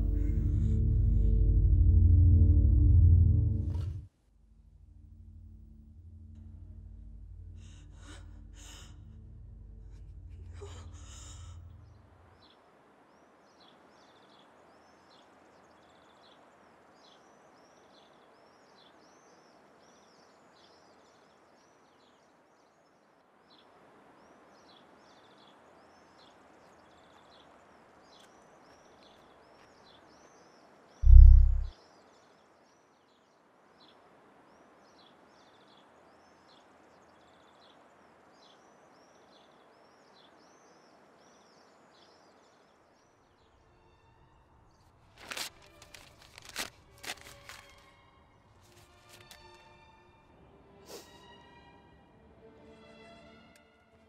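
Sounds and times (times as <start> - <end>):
low steady drone: 0.0 - 12.2, 31.0 - 31.7
birds chirping: 25.2 - 31.7
loud low thump: 31.0 - 31.7.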